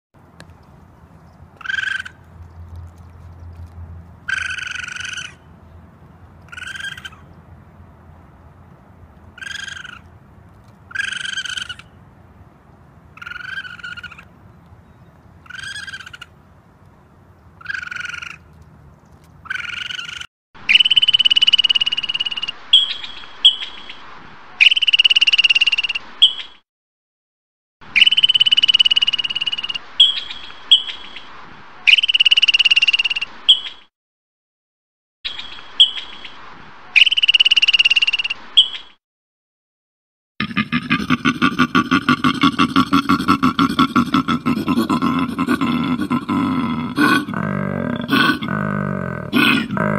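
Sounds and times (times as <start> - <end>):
long high-pitched animal calls: 19.5 - 23.6, 27.9 - 31.1, 40.4 - 49.9
short animal calls: 40.4 - 49.9.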